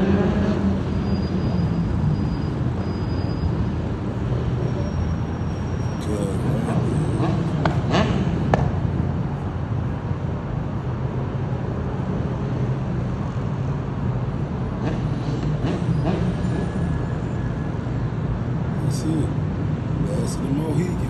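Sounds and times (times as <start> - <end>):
street traffic rumble: 0.0 - 21.0
motorbike engines revving: 5.9 - 9.0, 18.8 - 21.0.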